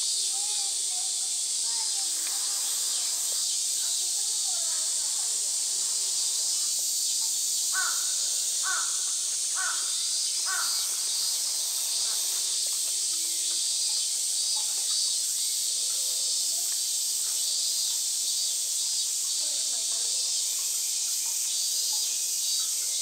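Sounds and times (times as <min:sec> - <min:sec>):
high-pitched insect drone: 0:00.0 - 0:23.0
crow cawing: 0:07.7 - 0:11.0.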